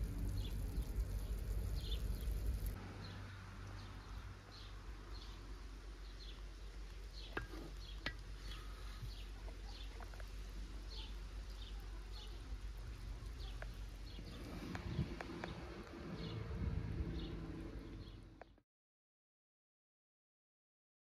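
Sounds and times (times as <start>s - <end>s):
low steady rumble: 0.0s - 18.4s
bird chirping: 0.1s - 12.4s.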